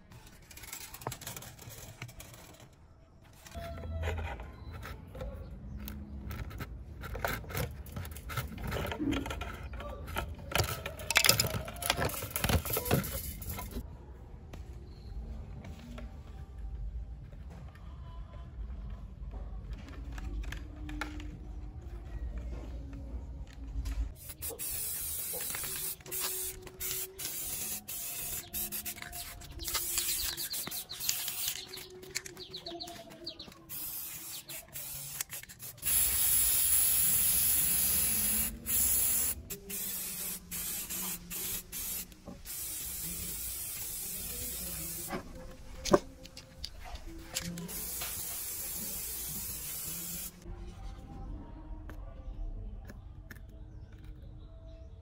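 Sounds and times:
spray paint can hissing: 10.5 - 13.8, 24.1 - 50.4.

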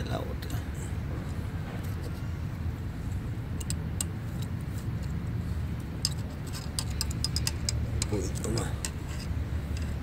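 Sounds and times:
steady low rumble: 0.0 - 10.0
light metallic clicks: 3.5 - 10.0.

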